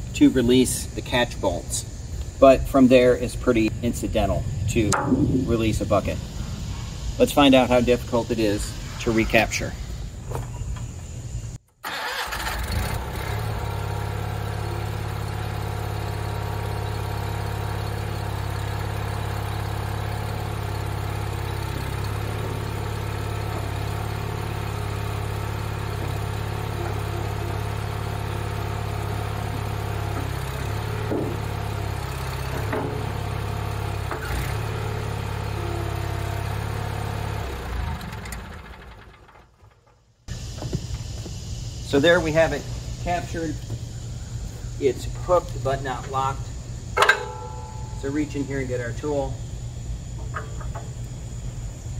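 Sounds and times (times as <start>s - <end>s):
metal clanks: 4.9s - 6.2s, 47.0s - 48.0s
garden tractor engine running: 10.1s - 51.9s.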